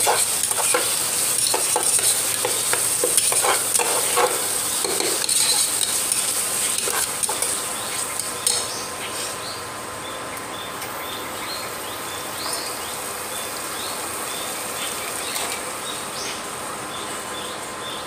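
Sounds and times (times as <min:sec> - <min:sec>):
curry sizzling with small pops: 0:00.0 - 0:08.7, 0:14.8 - 0:15.7.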